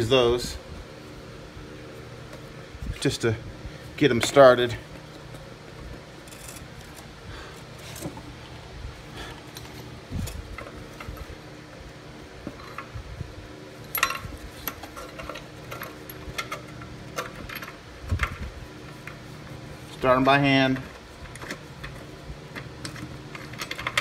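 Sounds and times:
metal bolts clinking on metal: 20.2 - 24.0.

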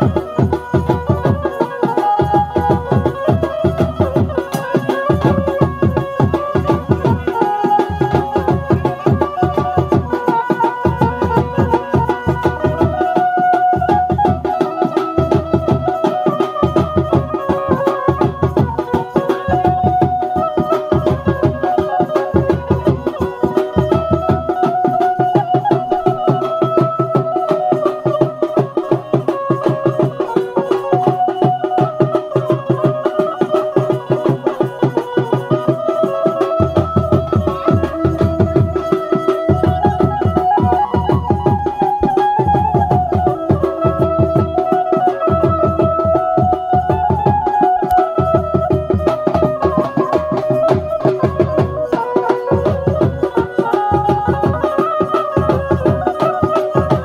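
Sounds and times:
drums in quick rhythm: 0.0 - 57.0
light percussion: 0.0 - 57.0.

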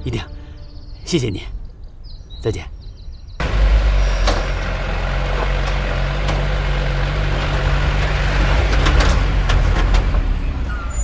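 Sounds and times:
truck engine running: 3.4 - 10.7.

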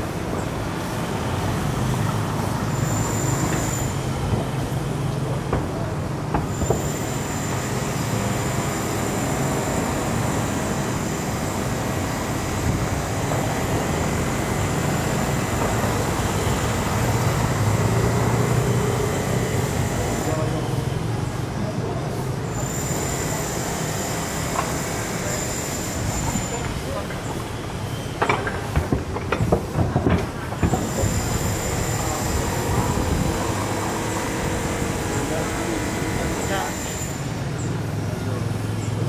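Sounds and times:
vehicle engines rumbling: 0.0 - 39.0
thin high whine: 2.5 - 4.3.

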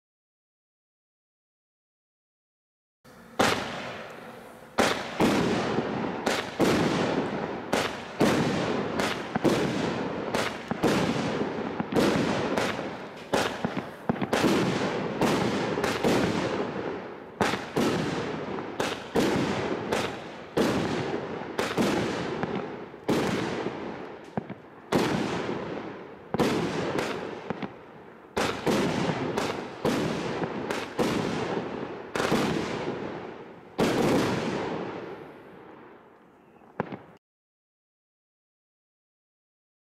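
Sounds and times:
firework cake shots: 3.1 - 35.3.

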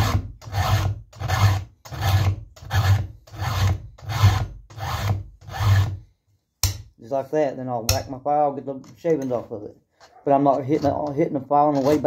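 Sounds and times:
file rasping on chainsaw chain: 0.0 - 6.0, 10.0 - 12.0.

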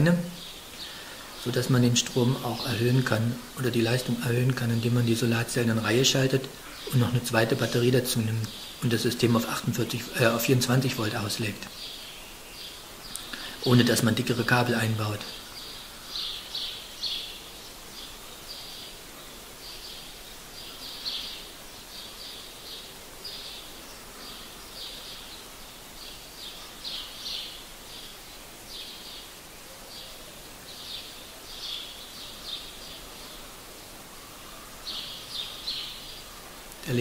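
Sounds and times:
bird chirping: 0.0 - 37.0
faint steady hiss: 0.0 - 37.0.

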